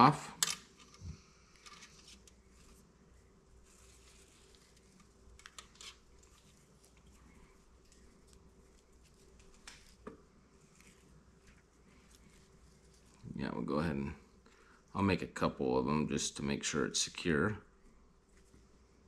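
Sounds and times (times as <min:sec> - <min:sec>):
faint rustles and ticks: 0:03.6 - 0:13.3.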